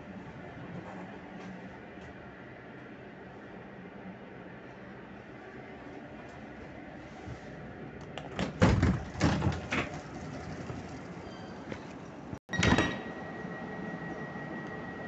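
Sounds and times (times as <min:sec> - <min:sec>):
steady high-pitched tone: 0:12.6 - 0:15.0.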